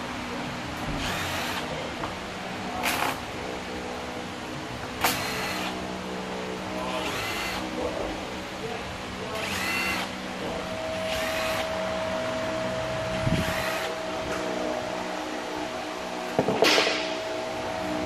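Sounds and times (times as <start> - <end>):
power screwdriver whirring: 1.0 - 1.6, 5.0 - 5.8, 7.0 - 7.6, 9.4 - 10.1, 11.0 - 11.6, 13.3 - 13.9.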